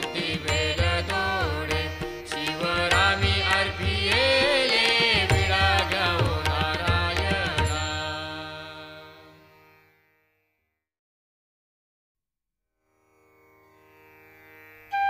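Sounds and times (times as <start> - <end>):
light percussion: 0.0 - 8.6
devotional singing: 0.0 - 9.3.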